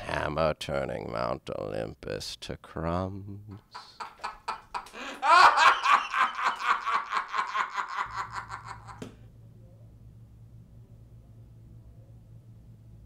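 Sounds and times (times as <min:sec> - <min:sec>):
low steady hum: 0:00.0 - 0:13.0
person laughing: 0:03.8 - 0:09.1.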